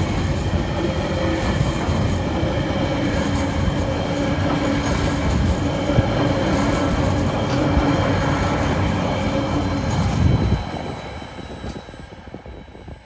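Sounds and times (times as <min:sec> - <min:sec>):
steady ringing tones: 0:00.0 - 0:13.0
train wheels rumbling on rails: 0:00.0 - 0:13.0.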